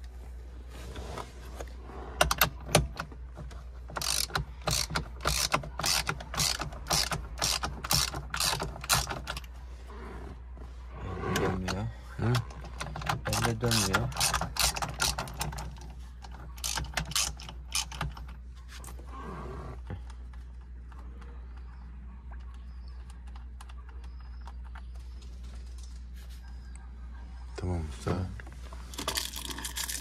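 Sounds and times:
socket ratchet clicking: 0:03.9 - 0:09.5, 0:12.8 - 0:15.8, 0:16.6 - 0:18.2.

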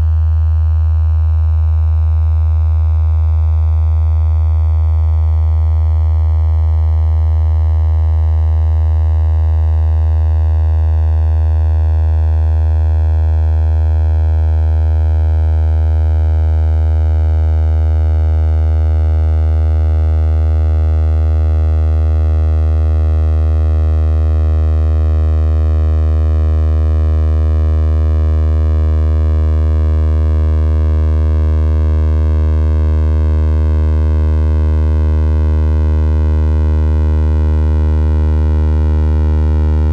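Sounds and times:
synthesized low drone: 0:14.6 - 0:39.9.

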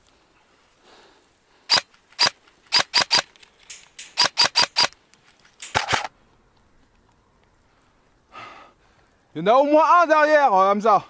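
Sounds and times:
airsoft rifle shots: 0:01.7 - 0:04.9, 0:05.6 - 0:06.1.

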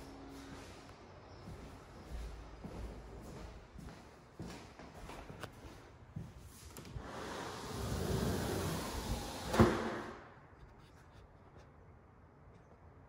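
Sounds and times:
sliding barn door rumbling: 0:07.0 - 0:10.2.

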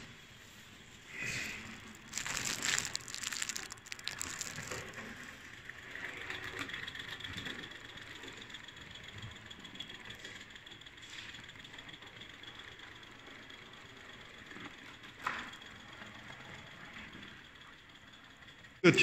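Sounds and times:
model steam train running: 0:05.5 - 0:18.8.

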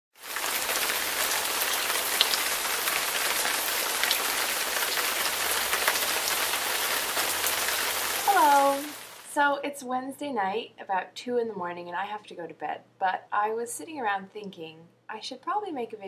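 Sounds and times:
rain falling: 0:00.2 - 0:09.3.

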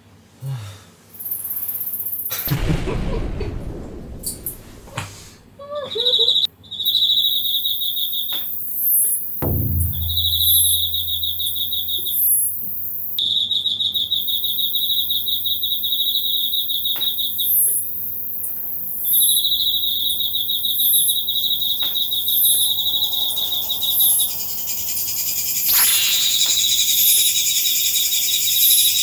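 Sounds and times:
high short katydid calls: 0:25.1 - 0:27.6.

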